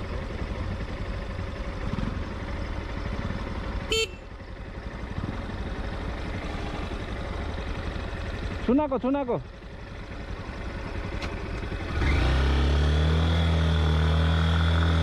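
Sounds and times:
motorcycle engine rumble: 0:00.0 - 0:15.0
road noise: 0:00.0 - 0:15.0
horn beep: 0:03.9 - 0:04.3.

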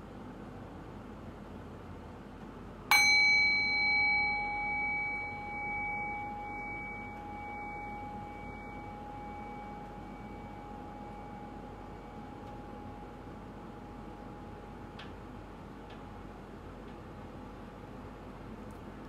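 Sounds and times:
meditation bell ringing: 0:02.9 - 0:14.9.

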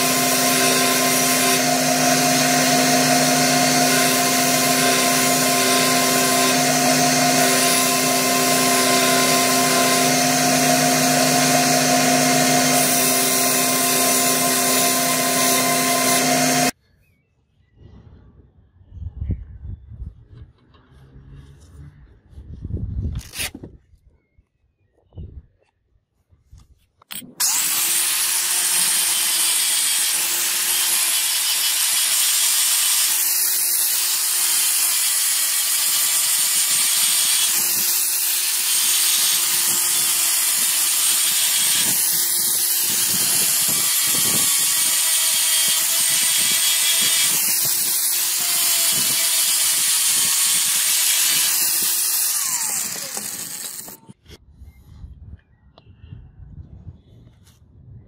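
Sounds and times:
angle grinder sanding steel: 0:00.0 - 0:16.8, 0:27.3 - 0:54.2.

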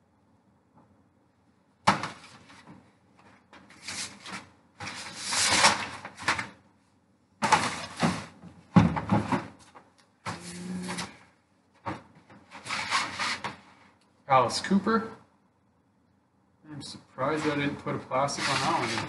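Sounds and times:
drums rustling and knocking: 0:07.4 - 0:10.4.

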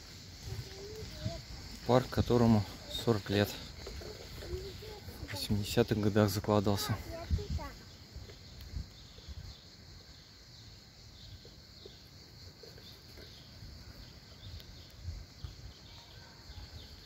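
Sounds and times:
footsteps on grass: 0:00.0 - 0:06.1
insect chirring: 0:00.0 - 0:17.0.

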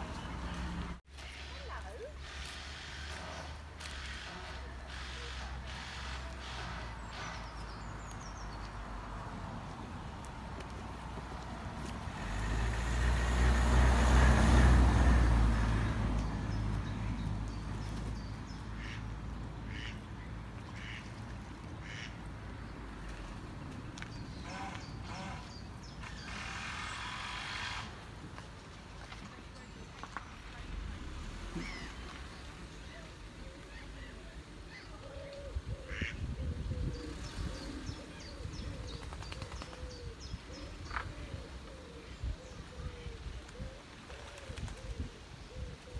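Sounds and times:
ducks quacking: 0:18.8 - 0:19.1, 0:19.7 - 0:20.1, 0:20.7 - 0:21.1, 0:21.8 - 0:22.2, 0:35.9 - 0:36.2.

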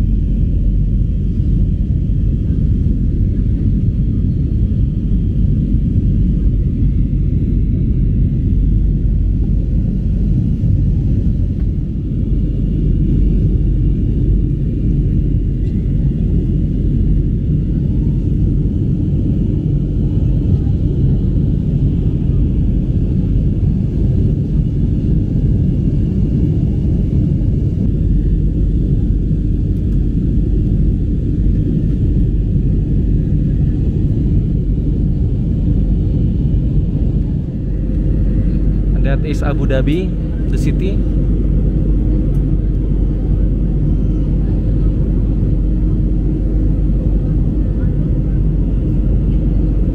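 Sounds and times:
jet engine cabin rumble: 0:00.0 - 0:49.9.

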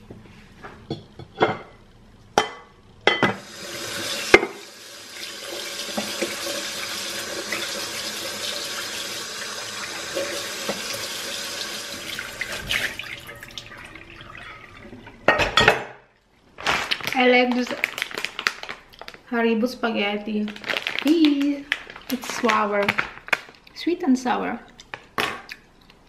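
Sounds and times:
dishes clattering: 0:02.4 - 0:03.4, 0:14.3 - 0:16.0
tap water splashing in sink: 0:05.4 - 0:06.5, 0:10.1 - 0:11.1, 0:12.0 - 0:14.4
dishes clinking: 0:14.4 - 0:16.0.

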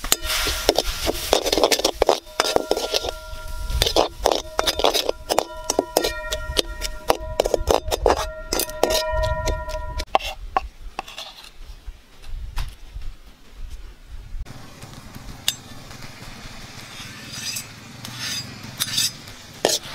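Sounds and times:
wok ringing: 0:00.0 - 0:10.1
metal spatula scraping wok: 0:00.0 - 0:11.6, 0:15.5 - 0:19.9.

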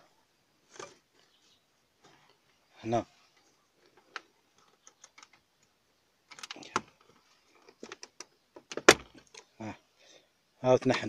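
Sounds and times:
plastic trim clicks and creaks: 0:06.3 - 0:09.5.

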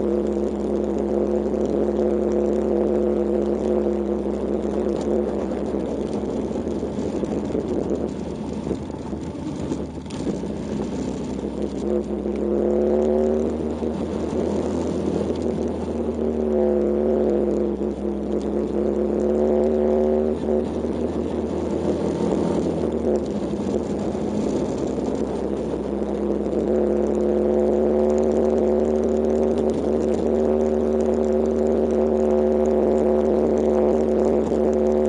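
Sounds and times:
motorcycle engine running: 0:00.0 - 0:35.0
wind noise: 0:03.5 - 0:16.4
tyres on gravel: 0:05.4 - 0:12.4.

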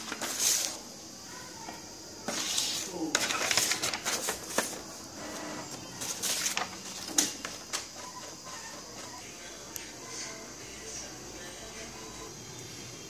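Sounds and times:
paper rustling: 0:00.0 - 0:00.9, 0:02.2 - 0:09.2.

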